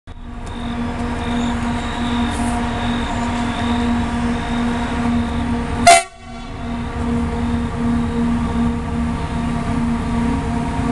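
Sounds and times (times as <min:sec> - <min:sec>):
locomotive engine drone: 0:00.1 - 0:10.9.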